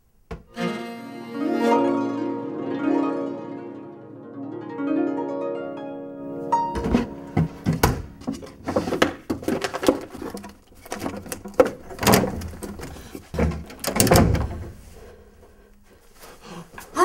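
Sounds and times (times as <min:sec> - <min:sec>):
wooden drawers opening and shutting: 0:06.6 - 0:14.9
papers rustling: 0:06.8 - 0:14.0.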